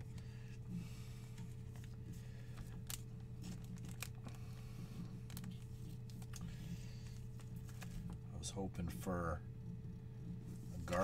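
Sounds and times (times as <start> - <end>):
low electrical hum: 0.0 - 11.0
plastic sleeve crinkling: 1.6 - 8.2.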